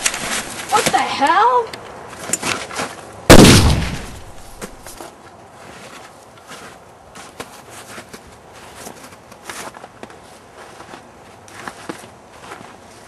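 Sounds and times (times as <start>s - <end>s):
faint footsteps: 0.0s - 1.2s, 4.0s - 13.0s.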